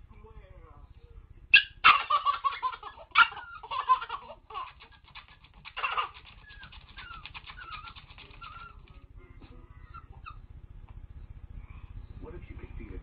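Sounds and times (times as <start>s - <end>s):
baby squealing: 1.6s - 8.8s
baby laughing: 1.8s - 8.9s.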